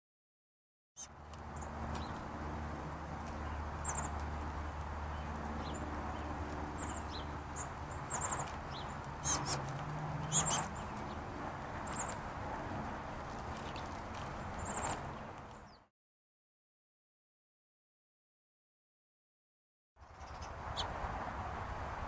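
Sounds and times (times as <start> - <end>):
songbirds chirping: 1.0 - 15.9.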